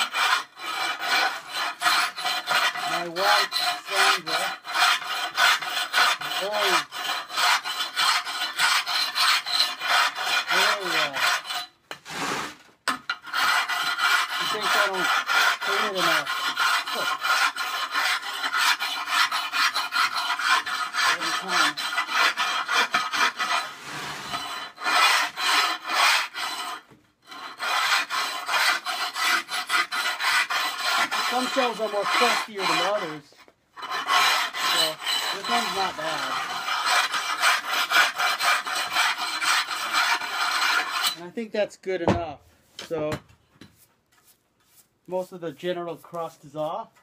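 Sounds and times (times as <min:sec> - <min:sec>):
abrasive block scraping ceramic: 0:00.0 - 0:41.4, 0:42.0 - 0:47.0.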